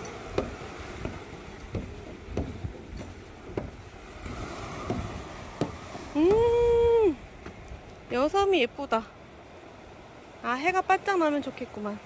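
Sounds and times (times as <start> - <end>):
footsteps on wooden stairs: 0.0 - 6.4, 7.4 - 8.2
waves: 0.0 - 12.0
wind: 0.0 - 12.0.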